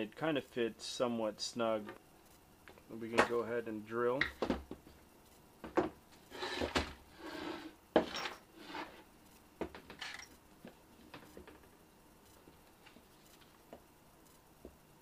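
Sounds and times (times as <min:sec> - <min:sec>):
wood scraping and rustling: 0:05.6 - 0:09.0.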